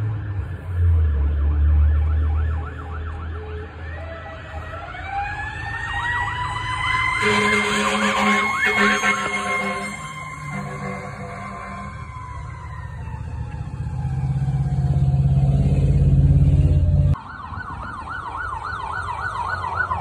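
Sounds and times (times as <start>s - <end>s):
fast yelping siren: 1.7s - 15.5s, 17.1s - 20.0s
siren winding up in pitch: 4.4s - 15.7s
horn blasts: 7.2s - 12.1s.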